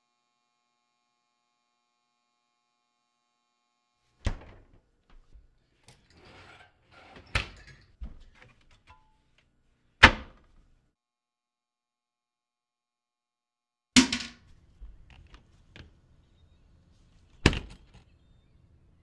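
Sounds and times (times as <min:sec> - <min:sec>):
doors shutting with thuds: 0:04.2 - 0:05.5
rustling and handling noises: 0:14.4 - 0:18.2.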